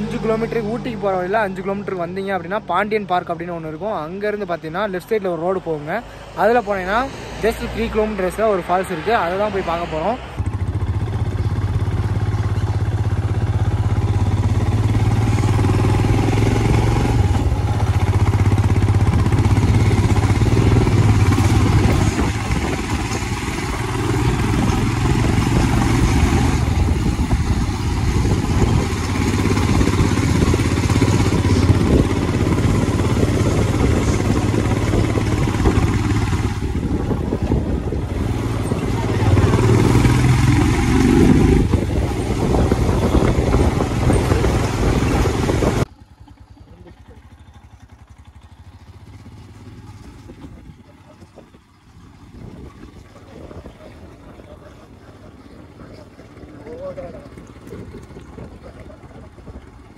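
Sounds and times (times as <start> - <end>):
road and wind noise: 0.0 - 59.9
motorcycle engine running: 10.2 - 59.9.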